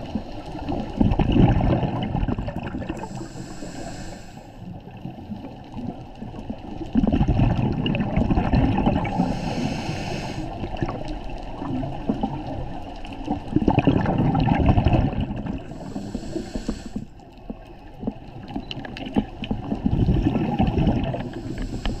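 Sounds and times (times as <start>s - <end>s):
exhaled bubbles gurgling underwater: 0.0s - 22.0s
regulator inhalation hiss: 3.0s - 4.6s, 9.1s - 10.6s, 15.7s - 17.2s, 21.2s - 22.0s.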